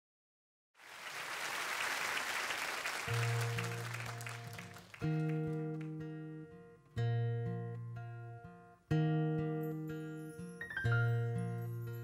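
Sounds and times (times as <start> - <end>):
audience applause: 0.8 - 5.9
acoustic guitar chord strummed: 3.1 - 12.0.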